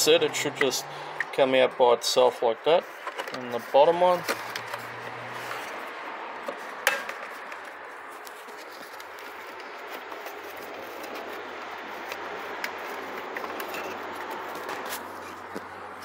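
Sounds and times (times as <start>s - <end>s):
handling plastic parts and wiring: 2.9s - 5.8s, 6.4s - 15.7s.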